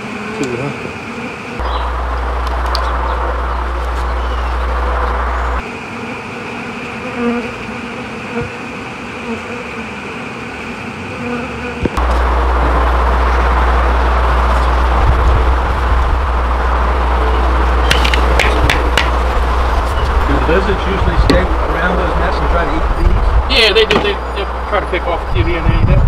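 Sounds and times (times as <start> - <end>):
honey bees buzzing: 0.0 - 25.7
deep rumble: 1.6 - 5.6, 12.0 - 26.0.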